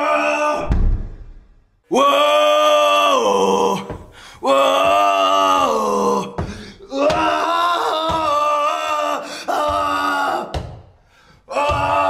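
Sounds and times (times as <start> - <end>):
man's drawn-out cry: 11.5 - 12.0.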